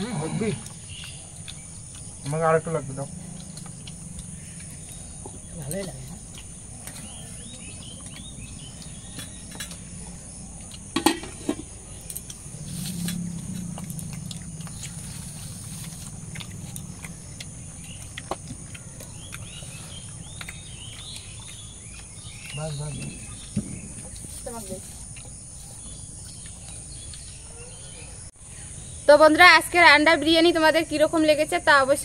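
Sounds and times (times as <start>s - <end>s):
bird chirps: 0.0s - 29.0s
insects droning: 0.0s - 32.0s.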